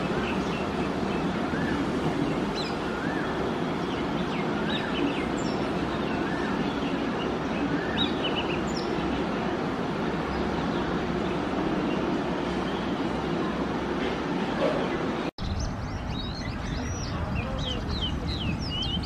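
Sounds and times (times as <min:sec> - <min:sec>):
bird whistling song: 0:00.1 - 0:09.0, 0:15.4 - 0:19.0.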